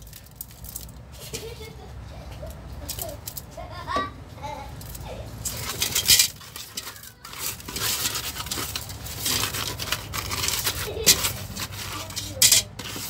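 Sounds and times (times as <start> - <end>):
salt scrubbing on fish scales: 4.8 - 13.0.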